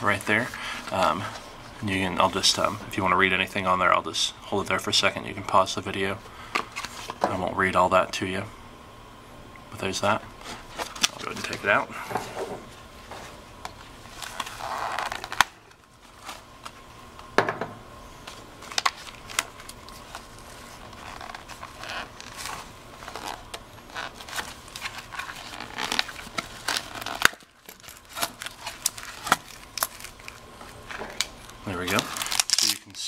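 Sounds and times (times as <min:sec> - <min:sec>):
card and plastic crinkling: 0:10.4 - 0:11.8, 0:13.1 - 0:16.9, 0:18.2 - 0:33.0.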